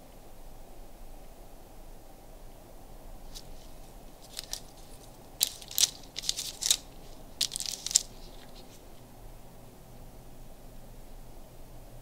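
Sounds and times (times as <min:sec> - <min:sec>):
paper crackling and crinkling: 0:03.3 - 0:09.0.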